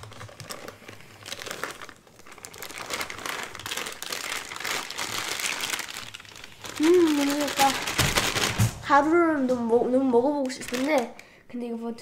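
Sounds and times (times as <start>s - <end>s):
plastic bag crinkling: 0.0s - 11.3s.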